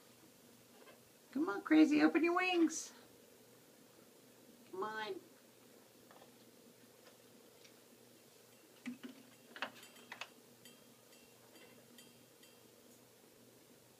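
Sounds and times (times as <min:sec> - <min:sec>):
light metallic ticks and tinkles: 0:08.5 - 0:13.1.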